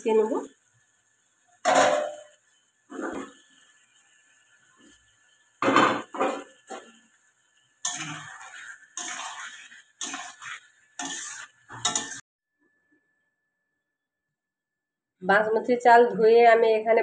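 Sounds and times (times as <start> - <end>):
metal spatula scraping a metal pan: 1.6 - 3.6, 5.6 - 7.1, 7.8 - 12.2.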